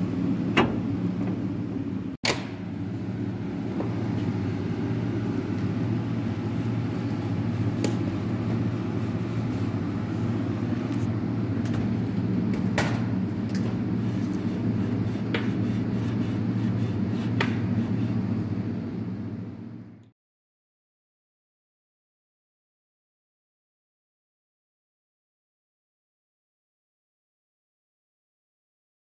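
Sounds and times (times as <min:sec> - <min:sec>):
low mechanical hum: 0:00.0 - 0:20.2.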